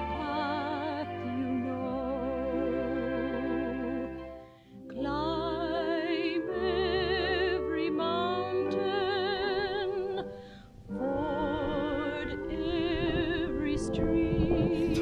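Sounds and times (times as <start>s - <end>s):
operatic singing: 0.0s - 10.3s, 10.9s - 15.0s
low sustained accompaniment: 0.0s - 15.0s.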